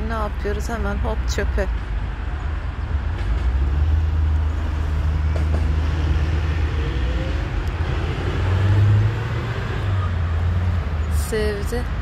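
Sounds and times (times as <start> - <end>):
road traffic rumble: 0.0 - 12.0
motor vehicle running nearby: 3.2 - 12.0.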